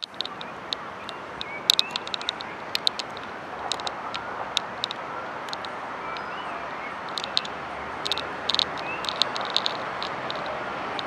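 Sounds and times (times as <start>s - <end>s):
bird chirps: 0.0s - 11.0s
distant city traffic hum: 0.0s - 11.0s.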